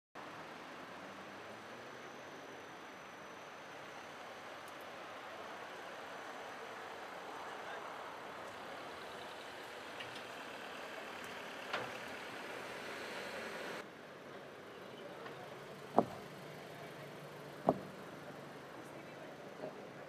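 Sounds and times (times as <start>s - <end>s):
car engine running: 15.9s - 16.4s, 17.6s - 18.2s
short sharp knocks: 16.0s - 16.2s, 17.7s - 18.0s.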